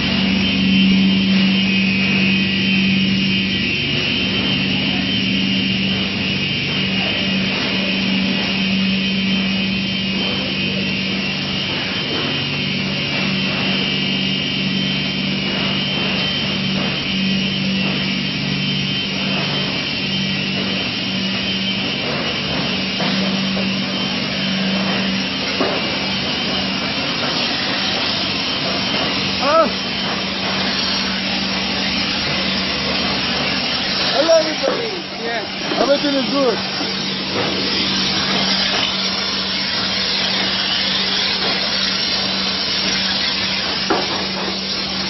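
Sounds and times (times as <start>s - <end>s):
loud machine hum: 0.0s - 45.0s.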